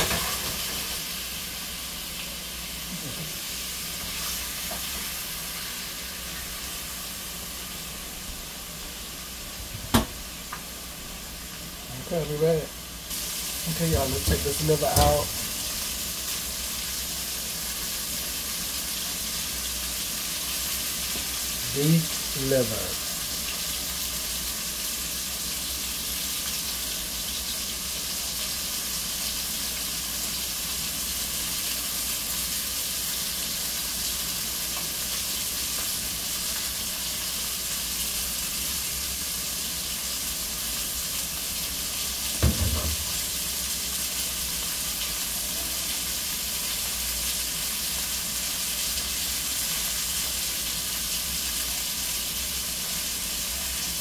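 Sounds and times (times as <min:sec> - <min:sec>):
hot oil sizzling in skillet: 0:00.0 - 0:54.0
short low knock: 0:42.4 - 0:43.1.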